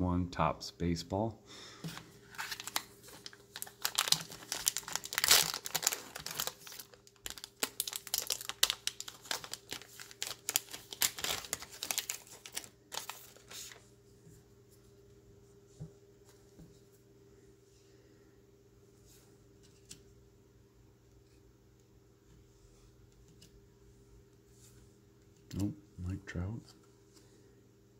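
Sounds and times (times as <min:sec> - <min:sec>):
card stack handling: 0:01.9 - 0:13.8
plastic wrapper crinkling: 0:02.3 - 0:13.8.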